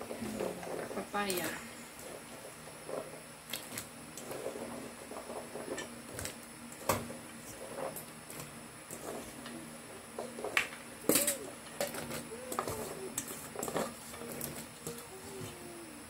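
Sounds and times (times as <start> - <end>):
dove cooing: 9.1 - 16.0.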